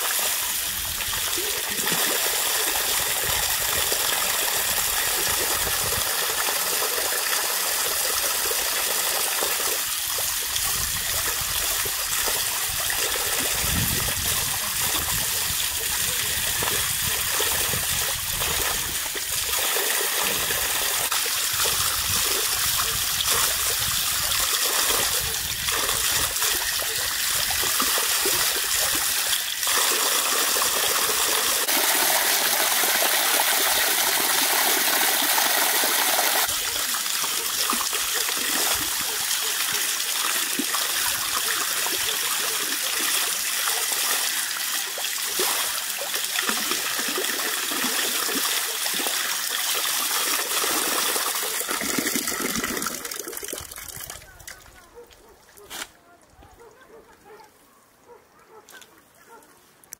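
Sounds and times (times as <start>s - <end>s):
water pouring from tap: 0.0s - 54.2s
water splashing over hands: 21.2s - 54.7s.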